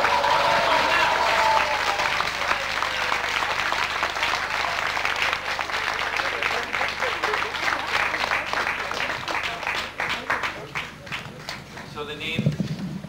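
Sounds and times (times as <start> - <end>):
people applauding: 0.0 - 12.4.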